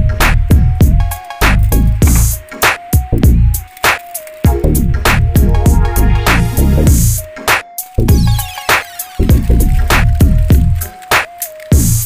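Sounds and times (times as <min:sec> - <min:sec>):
sliding deep bass notes: 0:00.0 - 0:02.4, 0:04.5 - 0:07.2
electronic drum beat: 0:00.2 - 0:12.0
held synth melody: 0:00.8 - 0:11.5.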